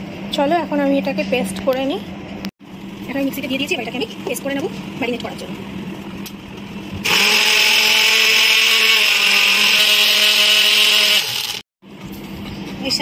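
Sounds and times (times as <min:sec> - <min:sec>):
mixer grinder motor running: 0:07.0 - 0:11.6.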